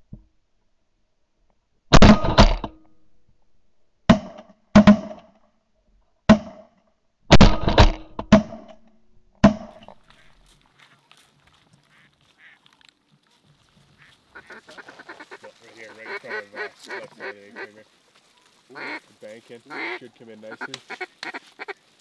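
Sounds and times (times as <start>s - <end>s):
shotgun blasts: 1.9s - 2.7s, 7.3s - 8.7s
ducks quacking: 10.0s - 22.0s.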